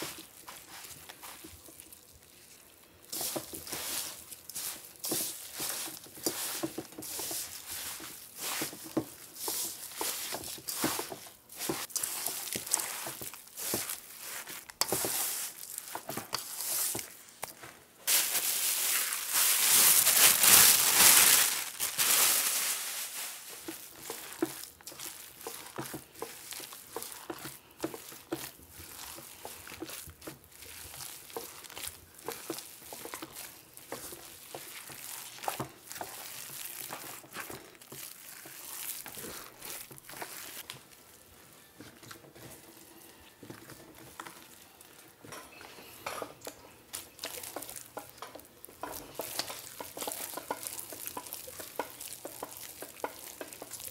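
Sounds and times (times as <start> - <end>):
hand kneading and slapping meat: 0.0 - 45.4, 46.2 - 53.9
powder poured from plastic bag: 18.1 - 40.9.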